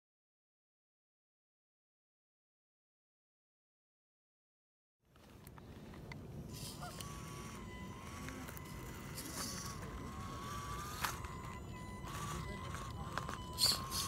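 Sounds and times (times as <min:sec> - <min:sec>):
electric motor and gears whining: 0:06.4 - 0:14.0.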